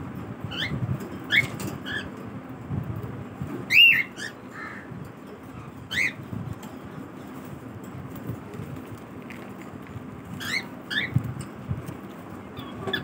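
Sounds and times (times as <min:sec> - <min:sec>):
cockatiels chirping: 0:03.7 - 0:04.4, 0:05.9 - 0:06.2, 0:10.4 - 0:11.2.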